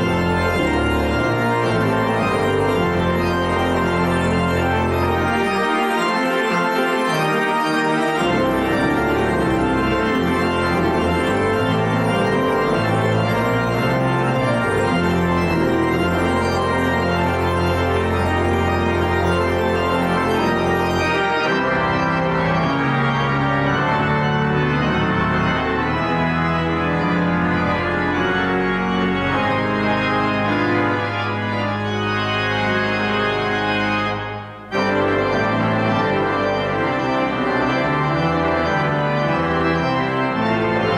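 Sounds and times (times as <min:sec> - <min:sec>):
church pipe organ playing chords: 0:00.0 - 0:40.9.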